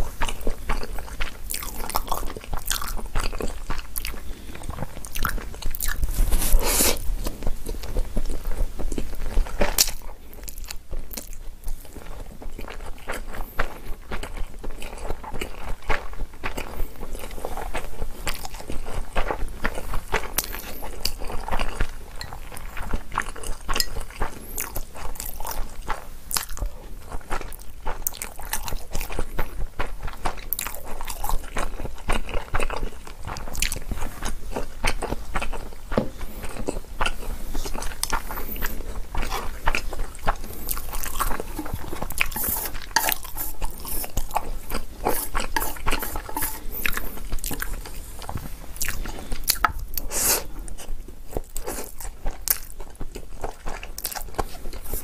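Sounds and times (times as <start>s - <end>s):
person chewing noodles: 0.0s - 55.0s
chopsticks tapping on ceramic: 45.1s - 47.0s.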